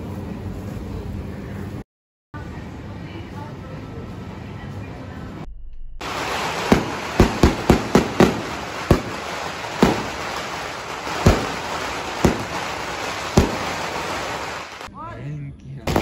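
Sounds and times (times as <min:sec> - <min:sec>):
steady noisy background: 0:00.0 - 0:01.8, 0:02.4 - 0:16.0
fireworks bangs: 0:06.0 - 0:14.9.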